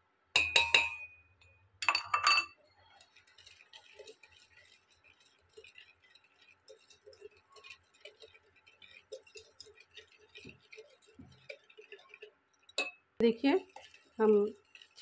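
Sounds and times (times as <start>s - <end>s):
whisk clicking against metal bowl: 2.8s - 15.0s.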